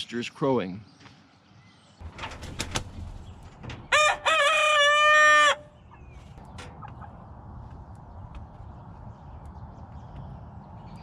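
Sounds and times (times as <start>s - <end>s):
cockerel crowing: 3.8s - 5.9s.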